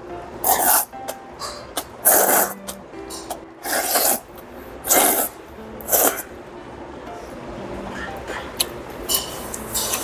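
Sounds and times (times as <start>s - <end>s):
faint background music: 0.0s - 10.0s
person slurping noodles: 0.4s - 0.9s, 2.0s - 2.6s, 3.6s - 4.2s, 4.8s - 6.3s.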